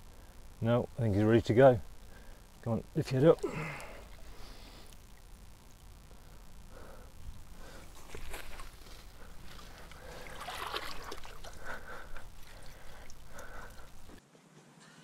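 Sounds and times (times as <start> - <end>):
pond water splashing: 2.8 - 6.3, 7.3 - 14.2
water running off sling: 3.0 - 5.2, 7.5 - 14.2.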